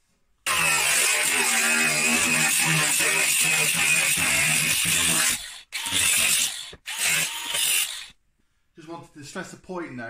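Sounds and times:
angle grinder grinding steel: 0.5 - 8.1.

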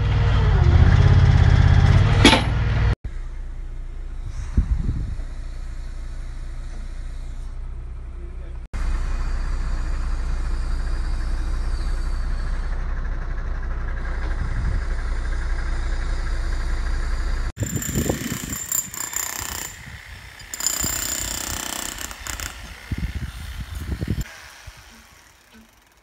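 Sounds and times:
diesel engine running steadily: 0.0 - 17.7
harsh construction machine noise: 4.3 - 26.0.

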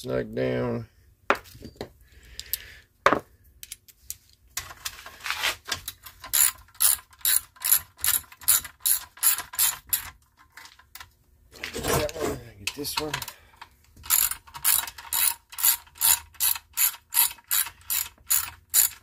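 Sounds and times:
hand ratchet clicking: 6.2 - 10.1, 14.0 - 19.0.

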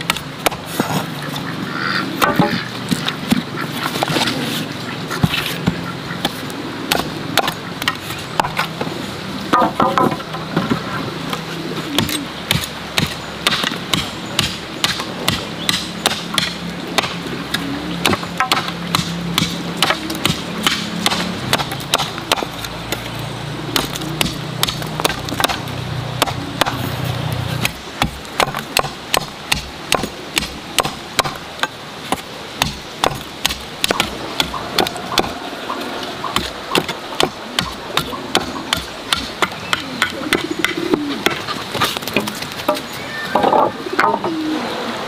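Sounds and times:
machete chopping bamboo: 0.0 - 1.0, 5.2 - 8.7, 12.0 - 23.1, 23.7 - 35.4, 36.3 - 42.8.

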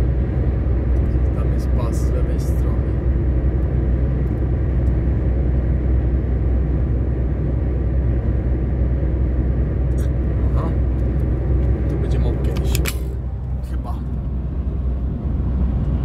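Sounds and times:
engine and tyre drone: 0.0 - 16.0.

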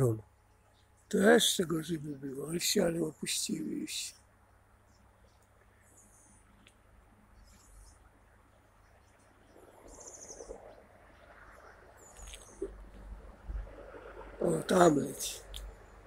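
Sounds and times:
small birds chirping: 0.0 - 13.7
low background hiss: 0.0 - 16.0
soft rustle: 9.1 - 14.4.

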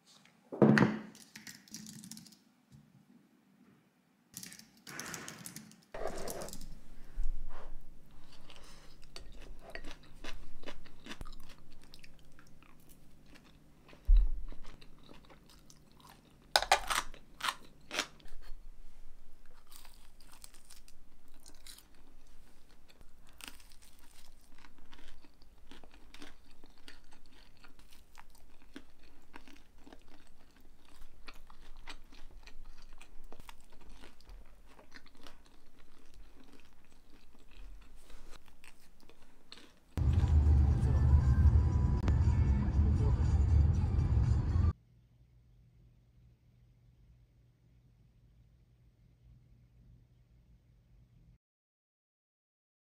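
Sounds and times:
person chewing crunchy food: 7.8 - 18.6, 19.4 - 40.2.

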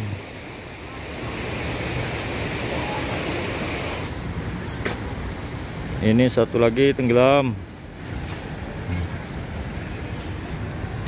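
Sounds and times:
floodwater rushing: 0.0 - 4.6.

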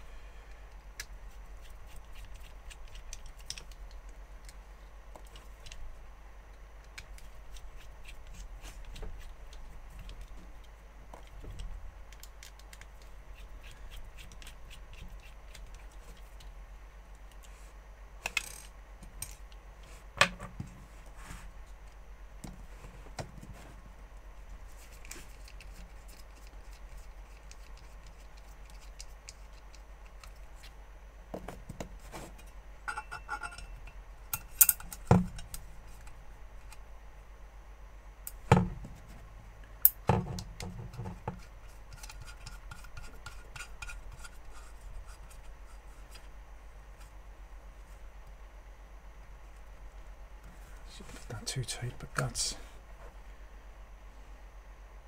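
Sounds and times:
small parts clicking and clattering: 18.2 - 19.6.

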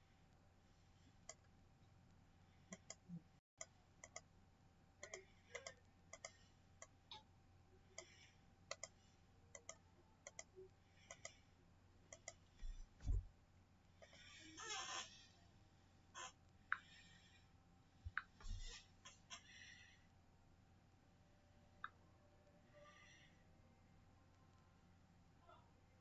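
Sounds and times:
computer mouse clicks: 2.7 - 4.3, 5.0 - 7.3, 8.0 - 11.4, 12.1 - 13.1
soft low thump: 12.6 - 13.3.

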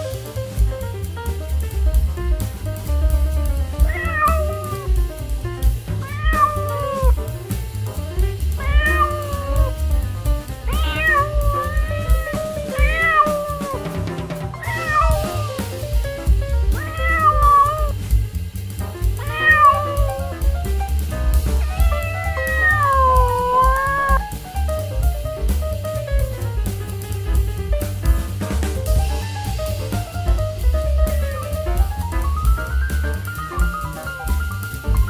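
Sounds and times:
background music with bass beat: 0.0 - 35.0
cat meowing: 3.8 - 5.0, 6.0 - 7.3, 8.5 - 10.0, 10.6 - 14.0, 14.6 - 15.8, 16.7 - 18.0, 19.1 - 20.5, 21.5 - 24.2.

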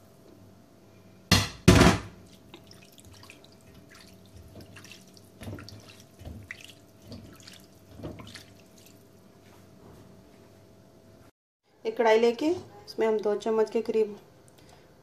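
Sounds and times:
water splashing into a pot: 2.1 - 9.1
hand stirring pasta in water: 2.2 - 9.4.

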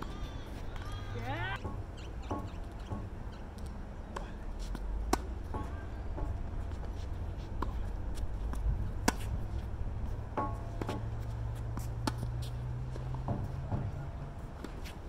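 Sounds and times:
tennis ball striking racket: 1.5 - 3.1, 5.1 - 6.4, 8.5 - 14.0.

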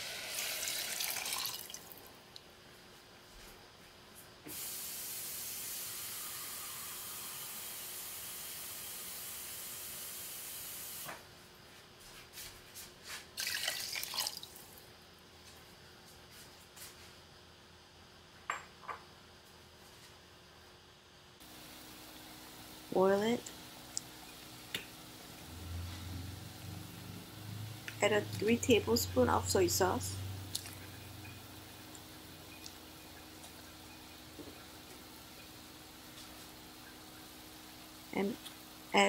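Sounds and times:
water splashing into pot: 0.2 - 2.0, 13.4 - 14.6.

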